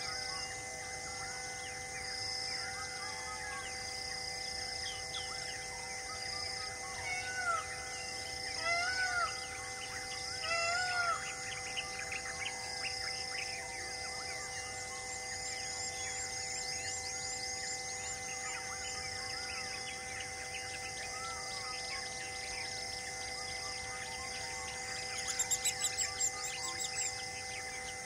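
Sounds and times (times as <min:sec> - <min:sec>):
loud arched bird calls: 0:04.8 - 0:28.0
birds chirping: 0:15.5 - 0:28.0.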